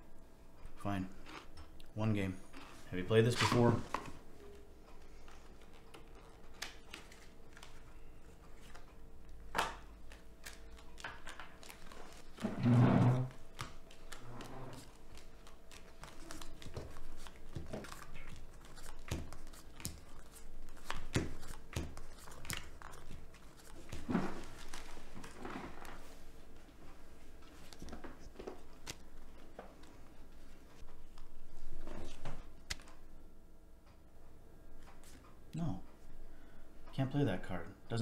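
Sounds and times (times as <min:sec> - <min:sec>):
faint steady hum: 0:00.0 - 0:38.0
playing cards shuffled and dealt: 0:03.2 - 0:04.2, 0:09.6 - 0:12.5, 0:13.2 - 0:26.2, 0:27.5 - 0:30.0, 0:31.1 - 0:33.0.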